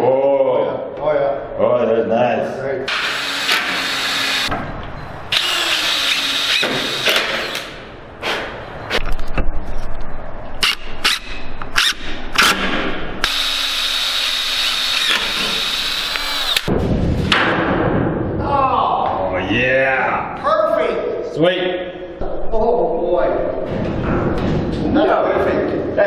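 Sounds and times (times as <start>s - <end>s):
cordless drill motor whine: 13.2s - 16.7s.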